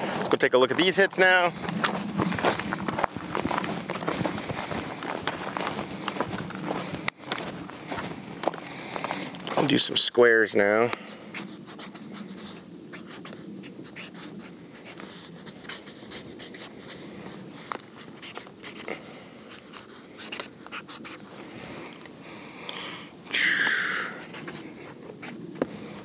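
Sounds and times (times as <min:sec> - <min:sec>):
marker pen scratching on paper: 0:11.3 - 0:21.5, 0:24.0 - 0:26.0.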